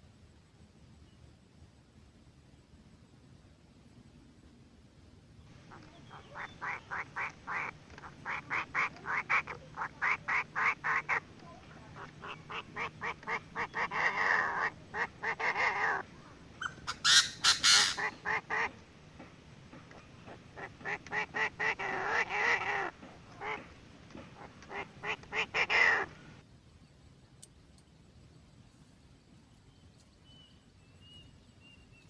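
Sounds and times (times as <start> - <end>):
francolin calls: 5.5 - 18.8.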